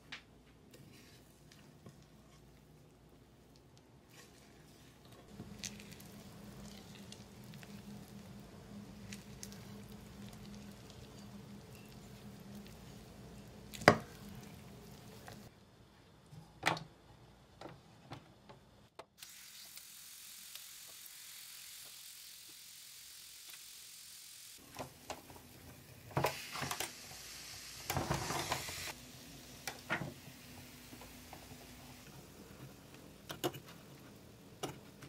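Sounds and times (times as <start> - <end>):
spoon stirring batter: 3.5 - 15.5
batter hissing on hot iron: 5.3 - 15.5, 19.2 - 32.7.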